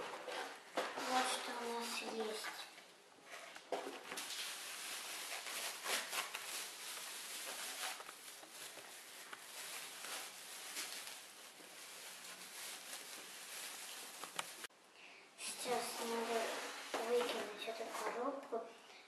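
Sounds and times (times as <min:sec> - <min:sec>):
plastic packaging rustling: 0:03.2 - 0:14.7, 0:15.7 - 0:18.2.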